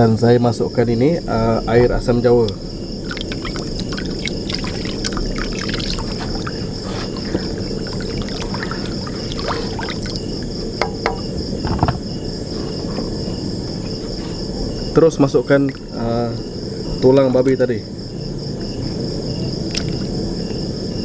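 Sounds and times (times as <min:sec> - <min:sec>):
insect chirring: 0:00.0 - 0:21.0
liquid sloshing and pouring: 0:03.0 - 0:11.3.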